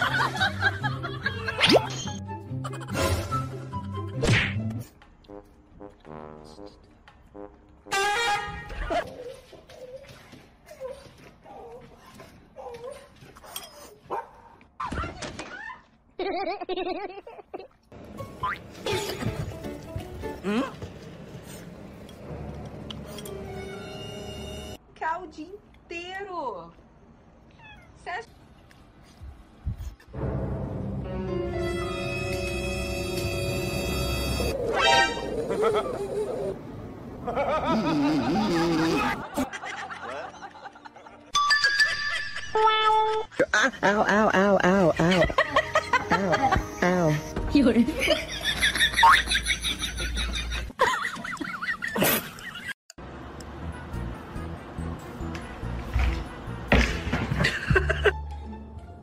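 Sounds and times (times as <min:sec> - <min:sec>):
person snickering and laughing: 0:00.0 - 0:04.2, 0:16.2 - 0:17.8, 0:35.2 - 0:36.6, 0:37.3 - 0:41.1, 0:41.8 - 0:47.3, 0:48.0 - 0:52.8.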